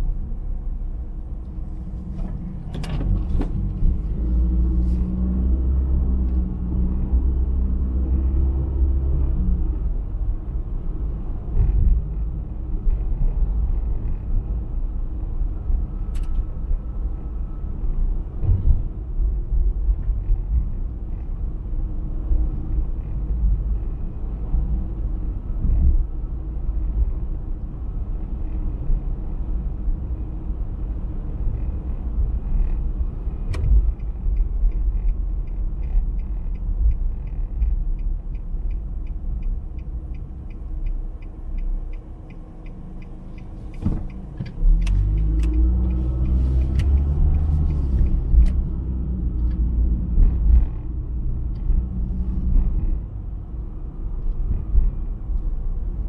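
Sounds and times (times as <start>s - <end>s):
car engine and road rumble: 0.0s - 56.0s
regular ticking: 33.6s - 47.1s.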